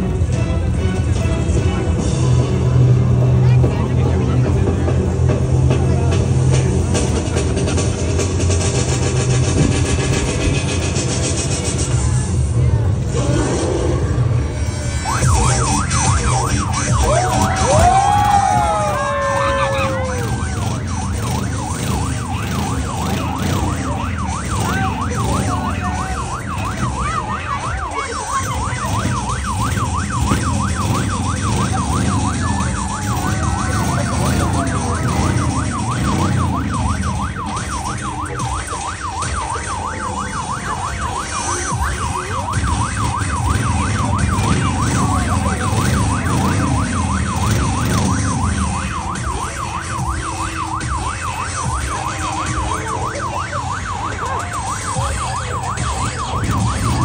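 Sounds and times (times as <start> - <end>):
warbling electronic siren tone: 13.1 - 57.0.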